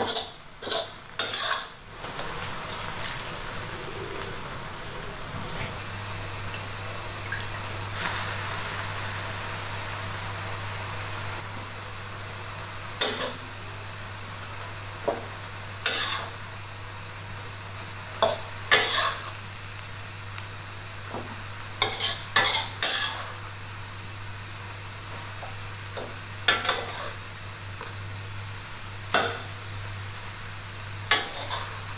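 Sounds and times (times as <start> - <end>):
spatula scraping wok: 0.0 - 6.3, 15.8 - 16.4, 18.2 - 19.4, 21.8 - 23.4, 26.5 - 27.2, 31.1 - 31.9
frying sizzle: 0.0 - 31.9.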